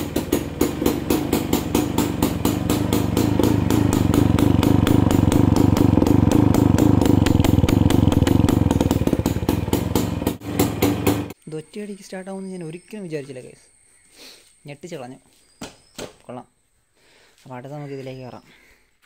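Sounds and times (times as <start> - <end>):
motorcycle engine idling: 0.0 - 11.4.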